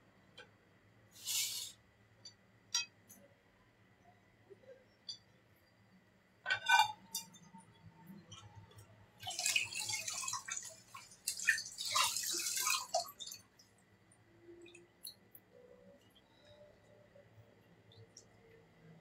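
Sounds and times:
water splashing in sink: 0:09.2 - 0:13.6.

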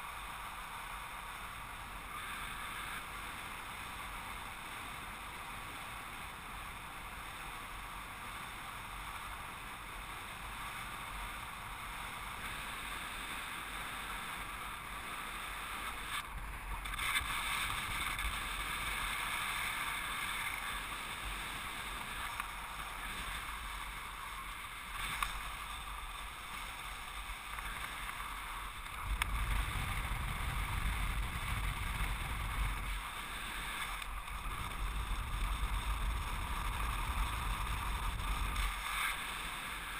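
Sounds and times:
wind rushing over microphone: 0:16.3 - 0:39.9.

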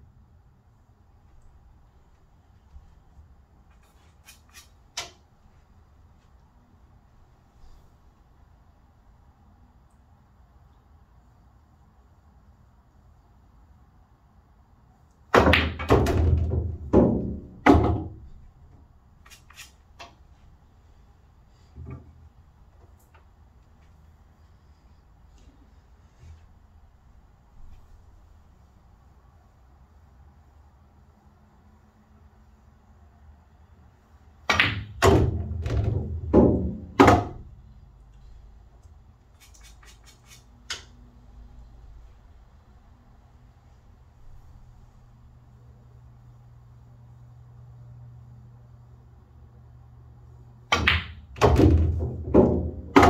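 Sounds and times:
billiard balls knocking: 0:15.4 - 0:18.4, 0:34.5 - 0:37.5, 0:50.7 - 0:53.0
pool cue ball clack: 0:34.5 - 0:37.5, 0:50.7 - 0:53.0
pool ball clunking down channel: 0:50.7 - 0:53.0.

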